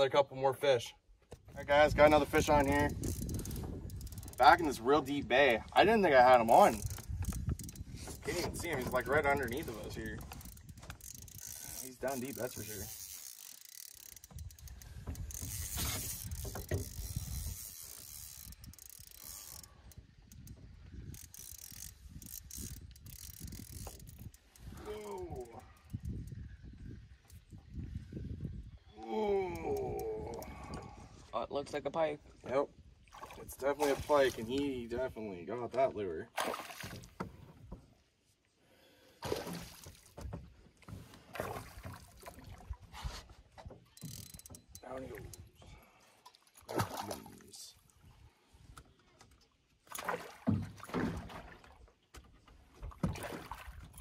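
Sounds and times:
fishing reel ratcheting: 0:02.2 - 0:04.9, 0:06.0 - 0:26.4, 0:43.9 - 0:45.4
water splashing around boat: 0:32.3 - 0:34.8, 0:36.2 - 0:38.1, 0:39.1 - 0:48.4, 0:49.4 - 0:54.0.

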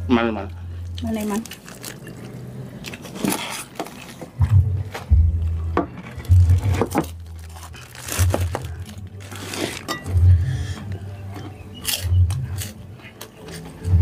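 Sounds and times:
crackers crunching: 0:00.9 - 0:05.1, 0:05.9 - 0:14.0
low booming pulse: 0:04.4 - 0:07.4
spoons clinking on plates: 0:09.8 - 0:10.2.

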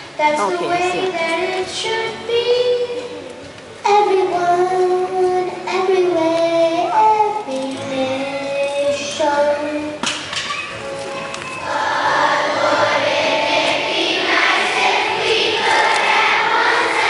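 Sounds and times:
boy singing: 0:00.2 - 0:03.3, 0:03.9 - 0:10.0.

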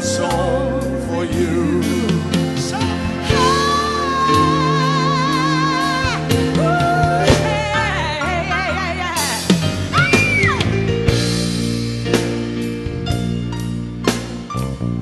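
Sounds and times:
woman singing soul ballad: 0:00.0 - 0:10.7
band playing chords: 0:00.0 - 0:15.0.

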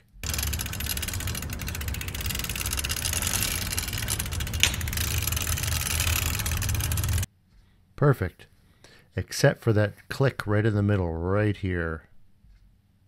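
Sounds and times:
bike running with rapid ticking: 0:00.0 - 0:07.3.

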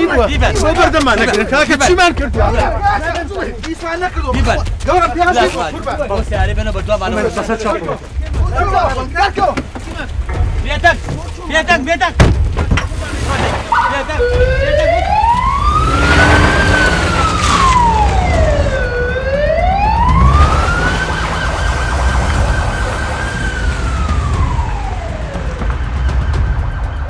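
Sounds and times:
wailing siren: 0:13.7 - 0:27.0.

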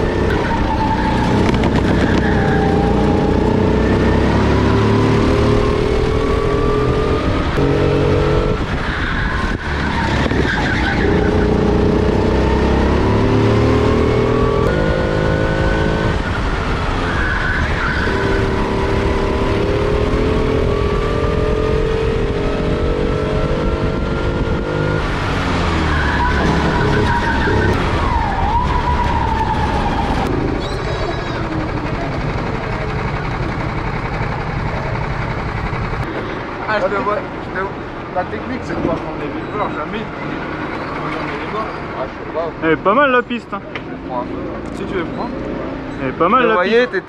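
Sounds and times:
kart engine revving: 0:00.0 - 0:38.5.

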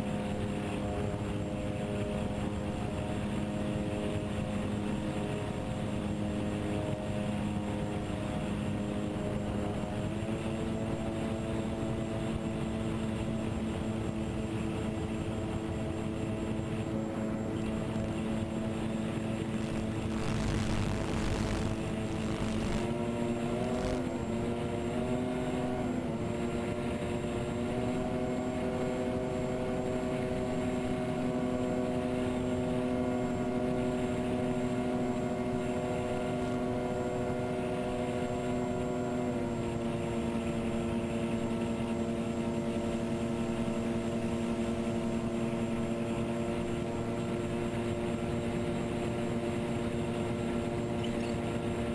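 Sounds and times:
electric motors and propellers humming: 0:00.0 - 0:51.9.

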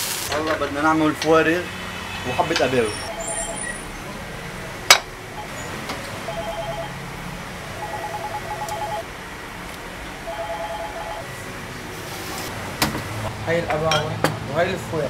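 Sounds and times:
electronic trilling ring: 0:02.8 - 0:03.9, 0:05.3 - 0:05.7, 0:06.3 - 0:07.0, 0:07.8 - 0:09.1, 0:10.3 - 0:11.3.

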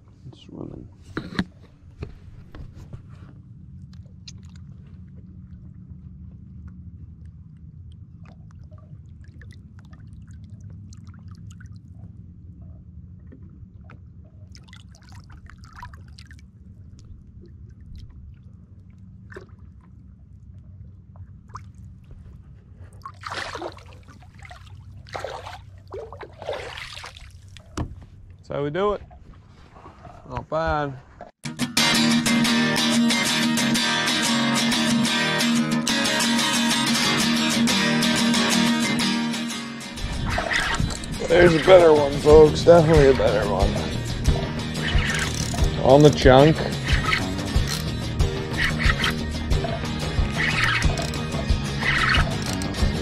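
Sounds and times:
boat engine idling hum: 0:00.0 - 0:31.3, 0:39.9 - 0:53.0
water sloshing against boat: 0:00.1 - 0:31.4, 0:40.0 - 0:53.0
fish splashing: 0:14.4 - 0:20.1, 0:22.8 - 0:27.8, 0:40.0 - 0:41.8, 0:43.1 - 0:46.0, 0:46.6 - 0:53.0.

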